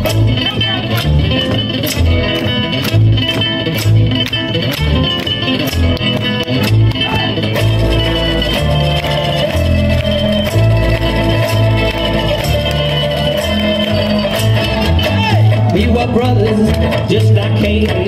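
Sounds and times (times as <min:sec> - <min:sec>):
guitar: 0:00.0 - 0:18.0
live band playing instrumental: 0:00.0 - 0:18.0
moving bass line: 0:00.0 - 0:18.0
steady drum beat: 0:05.6 - 0:18.0.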